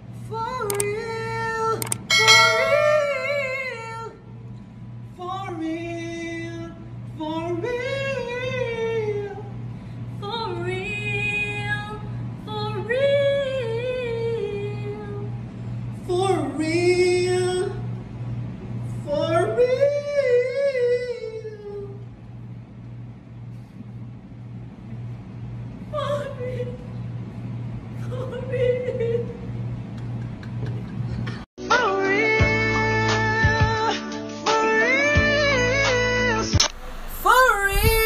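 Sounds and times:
low pulsing beat: 36.6 - 38.0.

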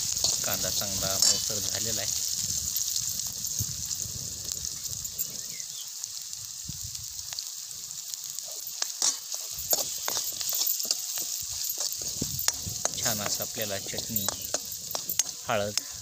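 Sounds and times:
steel spoon scraping a pan: 0.0 - 1.8, 8.4 - 16.0
food sizzling in hot oil: 0.0 - 16.0.

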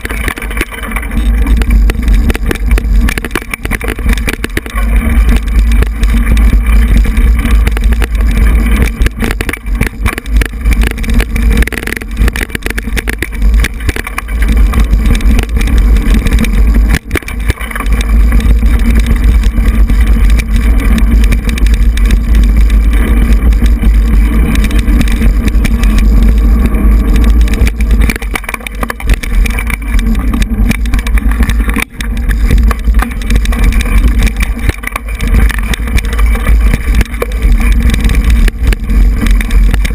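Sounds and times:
bike rattling over rough trail: 0.0 - 39.9
wind rumble on microphone: 0.0 - 39.9.

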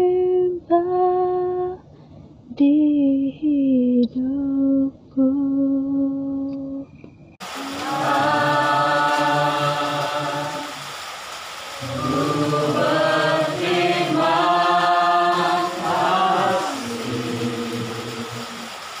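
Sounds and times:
voices singing worship song: 7.4 - 19.0.

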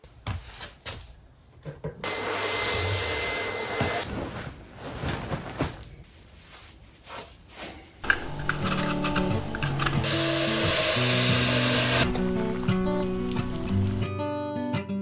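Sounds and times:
vacuum cleaner on wooden floor: 2.0 - 4.0, 10.0 - 12.1
rustling and handling sounds: 4.0 - 10.0
background music: 8.0 - 15.0.

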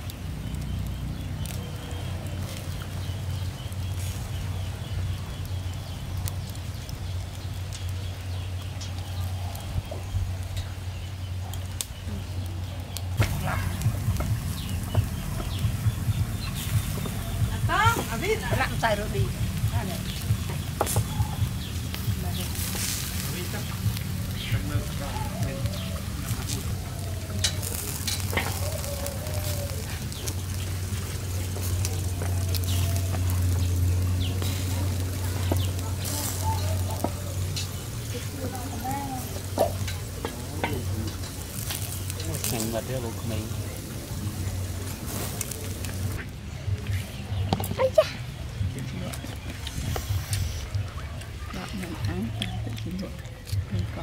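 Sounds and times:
skewers clicking on wire grill: 0.0 - 47.8
chicken wings sizzling: 0.0 - 54.0
embers crackling and popping: 0.0 - 54.0.

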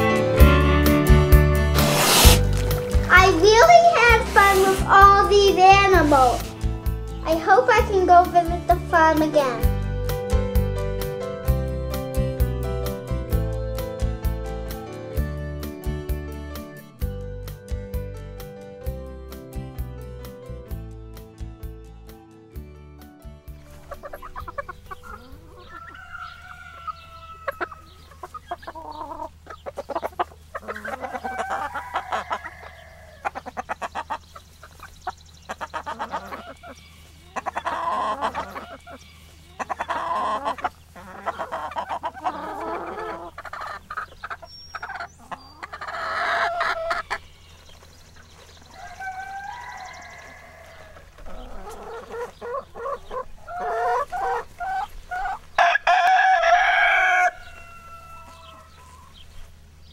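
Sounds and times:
hens clucking: 1.8 - 6.7, 23.6 - 59.5
rooster crowing: 25.6 - 28.0, 30.9 - 33.2, 48.7 - 51.5, 55.6 - 59.2.

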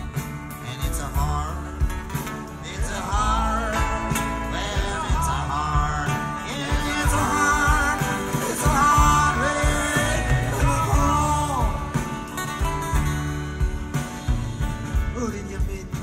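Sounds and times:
male lead vocal: 0.0 - 12.8, 13.9 - 16.0
electric bass: 0.0 - 16.0
guitars: 0.0 - 16.0.

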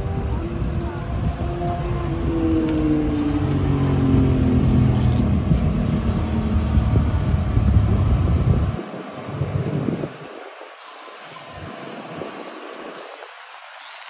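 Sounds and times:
low rumble: 0.0 - 10.3
vehicle engine passing: 0.6 - 10.1.

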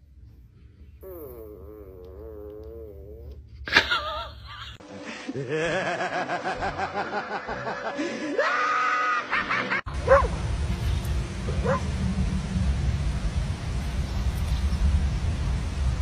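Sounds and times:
woman laughing: 3.7 - 9.8
wind rumble on microphone: 9.9 - 16.0.

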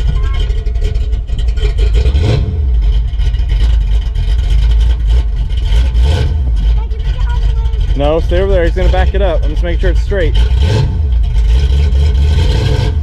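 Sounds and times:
car engine idling loudly: 0.0 - 13.0.

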